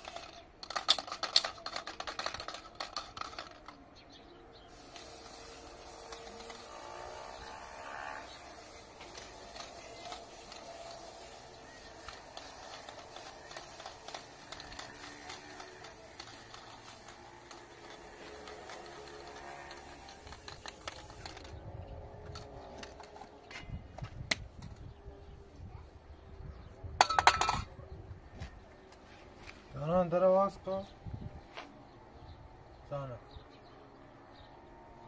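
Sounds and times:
spray paint can hissing: 0.0 - 3.7, 4.7 - 21.6.

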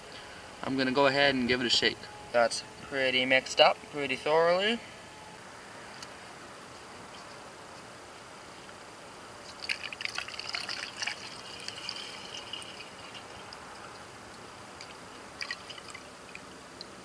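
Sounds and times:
fuel trickling through funnel: 9.4 - 17.0.

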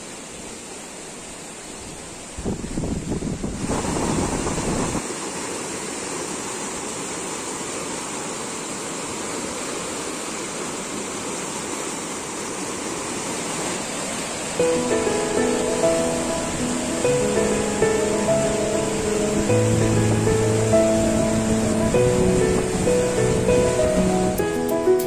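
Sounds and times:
water rushing over rocks: 0.0 - 25.0
music: 14.6 - 25.0.

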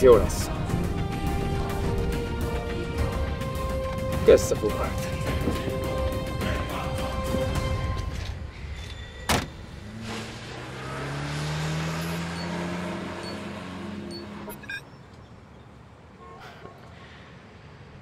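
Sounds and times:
car door slamming: 9.3 - 9.6
car engine pulling away: 9.4 - 14.6.

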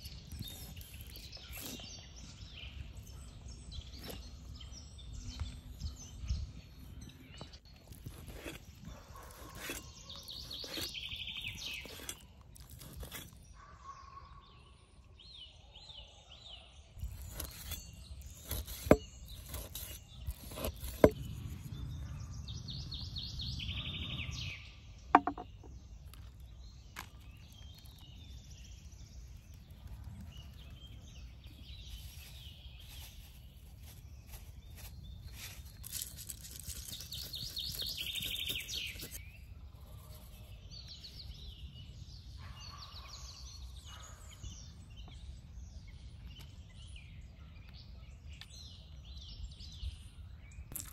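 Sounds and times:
songbirds trilling: 0.0 - 50.9
sharp knocks and clinks: 25.2 - 25.6.

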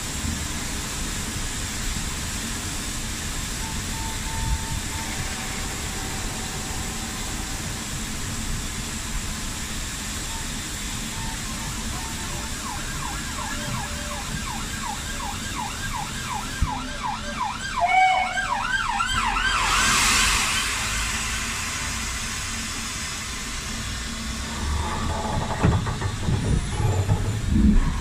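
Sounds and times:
loud hiss: 0.1 - 15.2, 18.2 - 28.0
siren yelping: 12.0 - 19.8.

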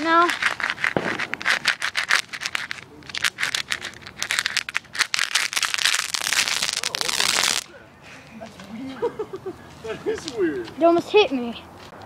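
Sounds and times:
firework crackling: 0.0 - 7.7.

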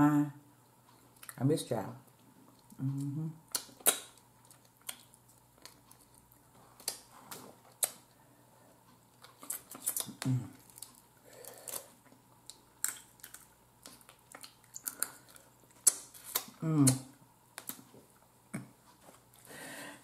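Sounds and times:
wet mouth eating sounds: 2.2 - 8.2, 9.2 - 17.8
crab shell cracking: 9.3 - 16.6.

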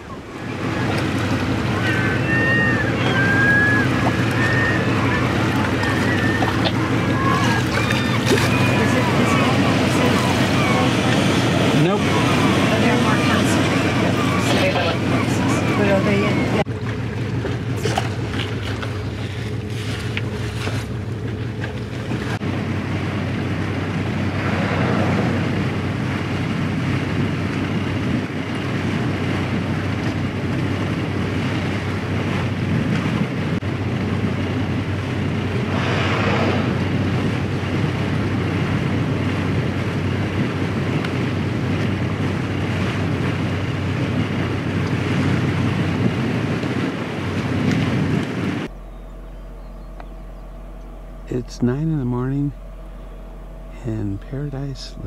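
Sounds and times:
rushing water: 0.0 - 33.6
boat engine humming: 0.0 - 55.0
wind noise on microphone: 22.1 - 55.0
hissing surges: 35.7 - 36.9.

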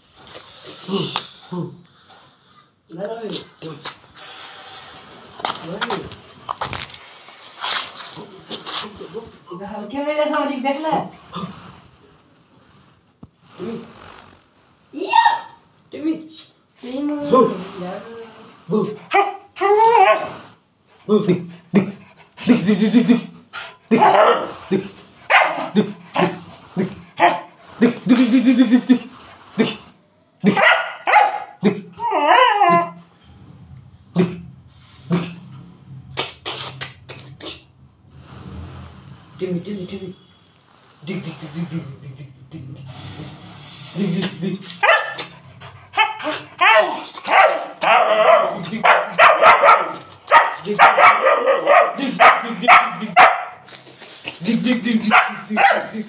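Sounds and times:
dog barking: 19.1 - 20.3, 23.9 - 24.6, 25.3 - 26.4, 27.2 - 27.5, 30.4 - 31.6, 44.8 - 45.3, 46.0 - 53.6, 55.1 - 56.0
dog whining: 19.1 - 20.5, 30.6 - 33.1, 44.8 - 50.0.

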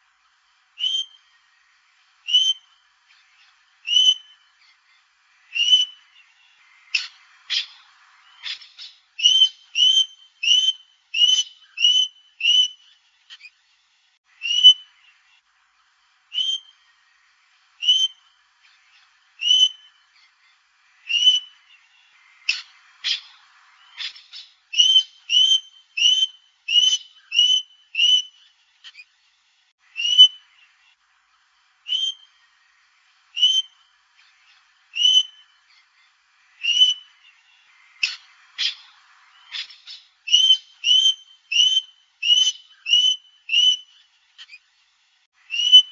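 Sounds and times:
parrot whistled calls: 3.8 - 4.4, 8.4 - 12.8, 14.4 - 14.9, 17.8 - 18.3, 19.4 - 19.9, 23.9 - 28.4, 29.9 - 30.4, 31.9 - 32.4, 33.4 - 33.8, 34.9 - 35.5, 36.6 - 37.1, 39.5 - 44.6, 45.5 - 45.9.

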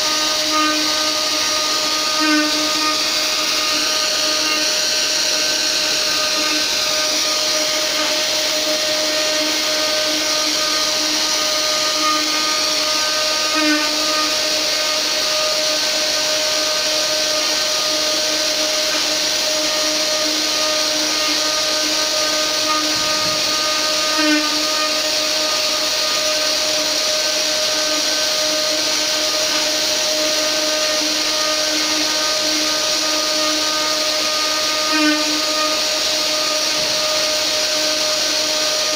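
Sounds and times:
cnc router spindle whining: 0.0 - 38.9.

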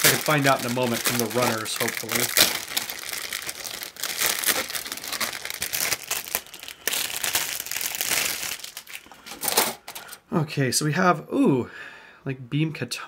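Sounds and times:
plastic bag crinkling: 0.0 - 10.2.

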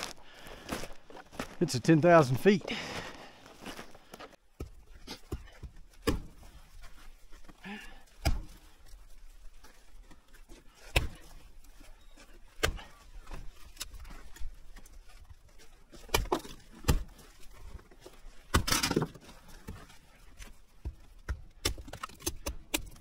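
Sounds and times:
hatchet chopping wood: 4.6 - 6.5, 8.1 - 8.7, 10.8 - 11.5, 12.5 - 14.2, 15.9 - 17.2, 18.5 - 19.8, 20.8 - 23.0.

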